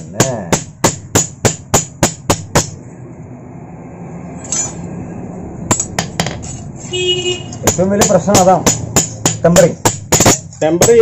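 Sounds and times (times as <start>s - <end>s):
hammer striking metal on anvil: 0.0s - 2.8s, 7.6s - 11.0s.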